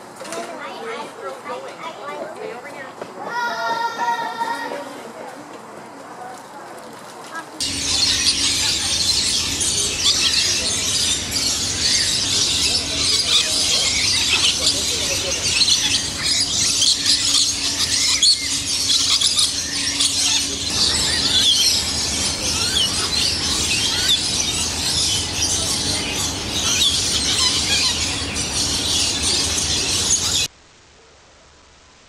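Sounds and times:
flock of birds squealing: 7.6s - 30.5s.

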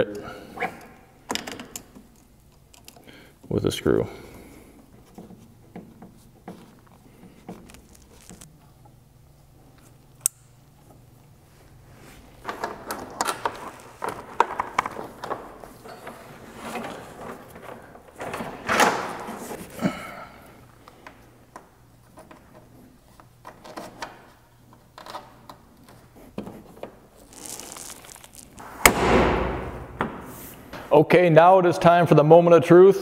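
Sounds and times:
wiring rustling and clattering: 5.0s - 8.7s, 12.4s - 19.8s, 22.0s - 28.7s.

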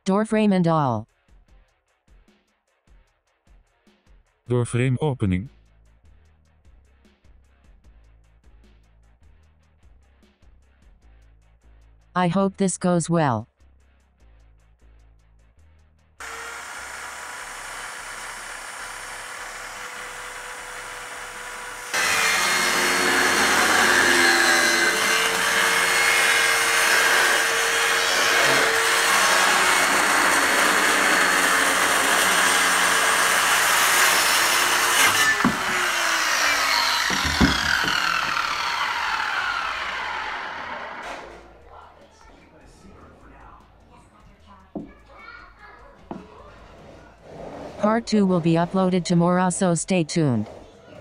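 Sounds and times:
circular saw cutting wood: 16.2s - 41.6s, 47.0s - 50.5s
knocks: 36.6s - 38.7s.

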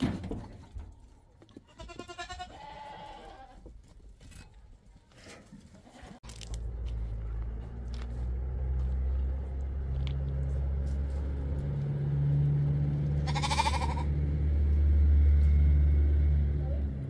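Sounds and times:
animal bleating: 1.6s - 3.6s, 13.2s - 14.2s
engine rumbling: 5.9s - 17.0s.

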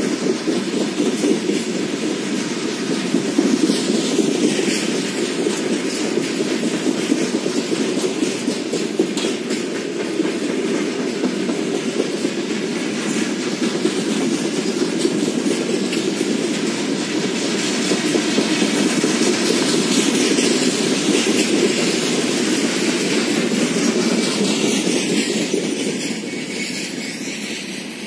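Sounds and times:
clicking and clattering over track: 0.0s - 28.0s
train wheels rumbling on rail: 0.0s - 28.0s.

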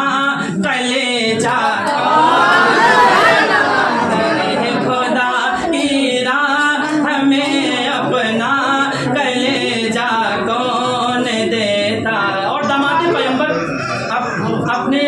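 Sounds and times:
man singing unaccompanied: 0.0s - 2.0s, 4.4s - 15.0s.

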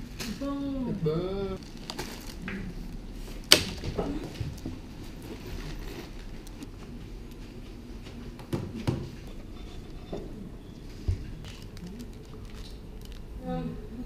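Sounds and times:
plastic bag crackling: 1.6s - 6.6s, 11.3s - 13.4s.

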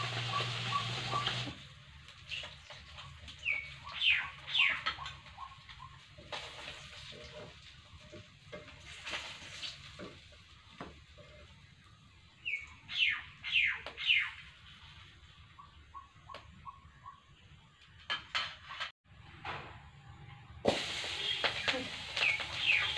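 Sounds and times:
birds calling: 0.0s - 1.6s, 2.3s - 6.2s, 11.3s - 17.9s, 21.1s - 22.9s
metal spatula scraping a wok: 6.2s - 10.2s.

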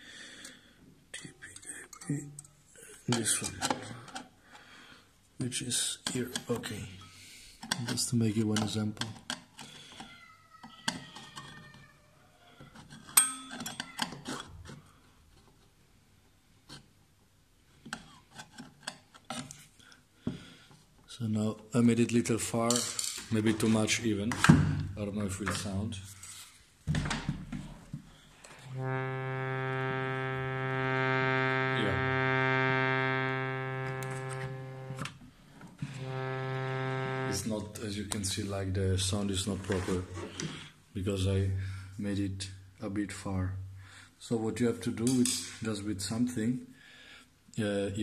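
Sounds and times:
harmonium reed low note: 28.7s - 35.1s, 35.9s - 38.4s.

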